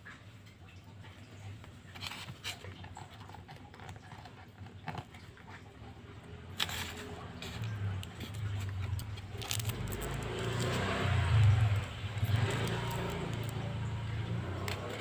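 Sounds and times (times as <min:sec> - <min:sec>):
fingers scratching and tapping card: 0:14.5 - 0:15.0.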